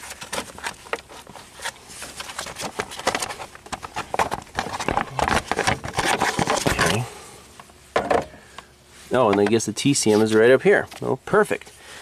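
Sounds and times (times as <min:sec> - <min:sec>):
gloved hands handling plastic parts: 0:00.0 - 0:07.1.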